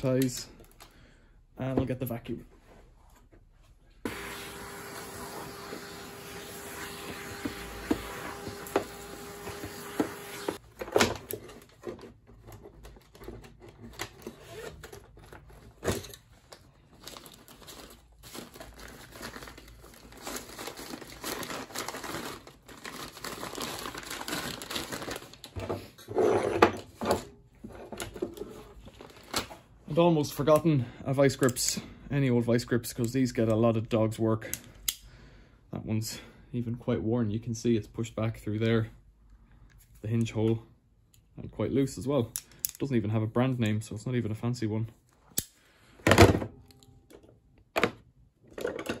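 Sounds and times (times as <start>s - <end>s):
vacuum cleaner humming: 4.1s - 10.6s.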